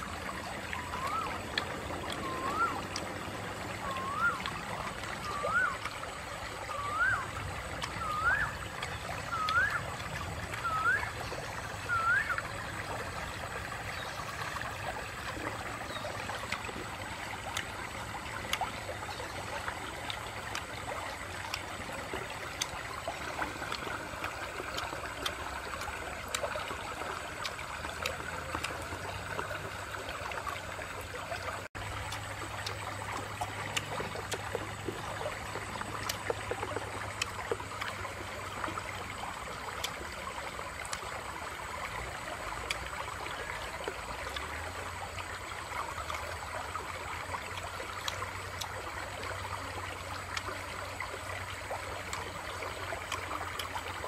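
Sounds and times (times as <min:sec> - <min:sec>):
stream running over rocks: 0:00.0 - 0:54.0
faint clicks: 0:07.0 - 0:12.4, 0:13.9 - 0:30.3.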